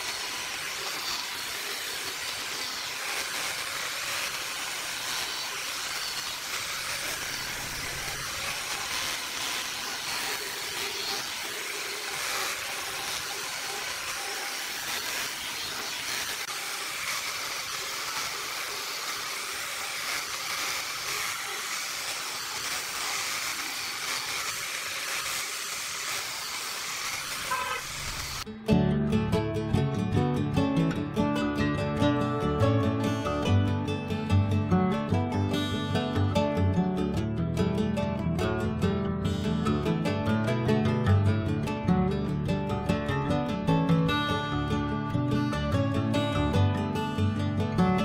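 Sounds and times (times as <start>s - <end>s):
angle grinder sanding wood: 0.0s - 28.5s.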